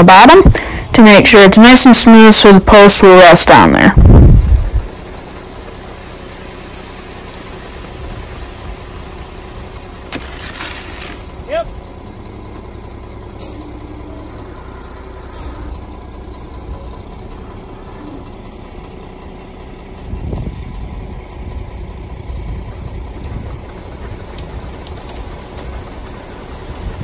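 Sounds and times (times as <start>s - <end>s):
truck engine running: 0.0s - 27.0s
concrete pouring down chute: 5.0s - 11.3s, 23.1s - 27.0s.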